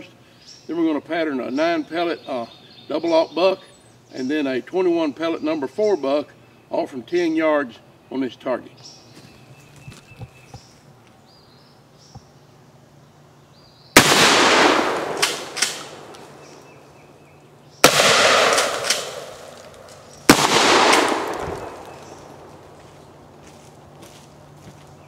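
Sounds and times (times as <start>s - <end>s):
shotgun shots echoing: 14.0s - 16.8s, 17.8s - 23.2s
shotgun pump clacks: 15.2s - 15.9s.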